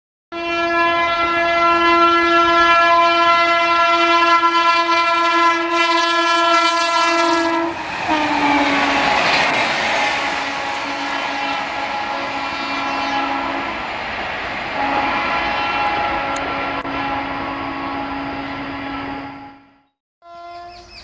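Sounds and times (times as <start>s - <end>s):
locomotive horn blast: 0.3s - 13.9s, 14.7s - 21.0s
train coaches rushing and rattling: 6.3s - 17.2s.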